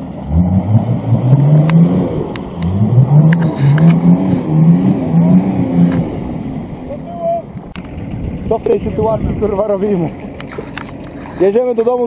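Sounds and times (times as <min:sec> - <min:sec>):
engine revving hard: 0:00.0 - 0:06.9.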